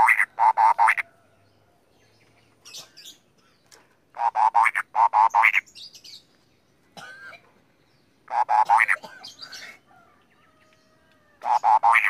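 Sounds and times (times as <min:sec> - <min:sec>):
songbird singing: 0:00.0 - 0:12.0.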